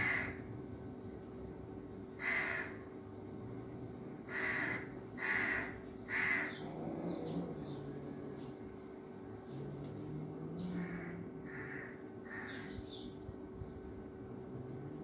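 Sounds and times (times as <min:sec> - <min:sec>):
crow cawing: 0:00.0 - 0:00.5, 0:02.2 - 0:02.8, 0:04.3 - 0:06.7, 0:10.7 - 0:12.8.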